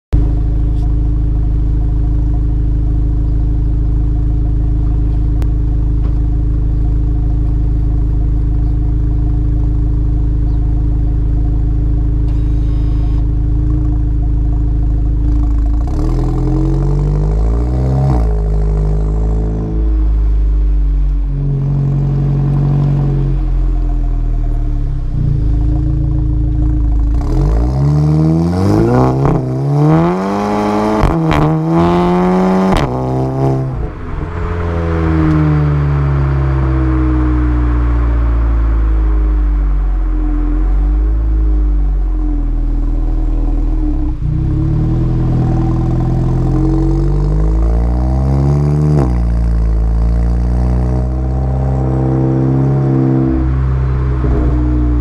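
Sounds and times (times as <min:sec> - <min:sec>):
car engine idling and revving: 0:00.1 - 0:55.0.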